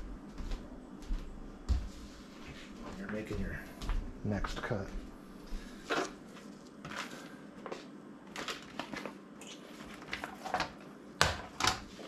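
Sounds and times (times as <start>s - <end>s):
vinyl sheets crinkling: 5.7s - 12.0s.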